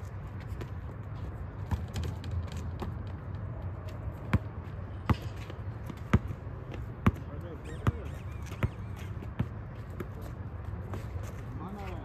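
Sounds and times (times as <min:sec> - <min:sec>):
basketball bouncing: 0:01.6 - 0:03.4, 0:04.1 - 0:10.2.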